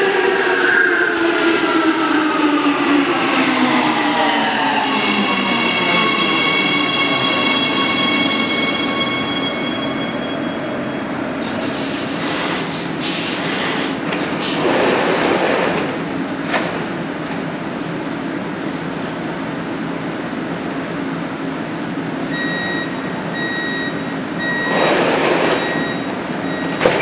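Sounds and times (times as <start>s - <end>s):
train traction whine: 0.0s - 16.2s.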